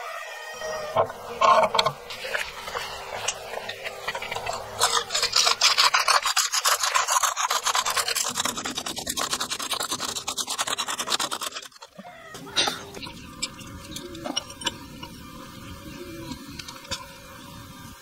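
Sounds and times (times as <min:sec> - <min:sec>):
hand drill bit scraping: 0:00.6 - 0:12.0, 0:12.6 - 0:17.5.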